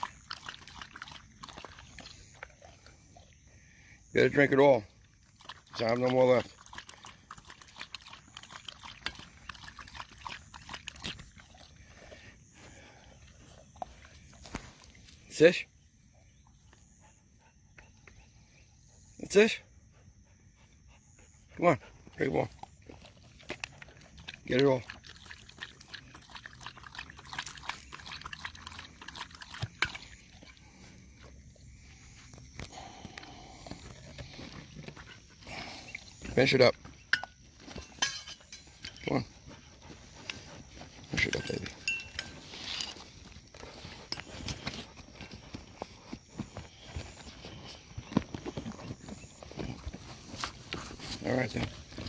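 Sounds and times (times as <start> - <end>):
dog lapping water: 0.0 - 3.4, 4.6 - 14.7, 22.3 - 31.0.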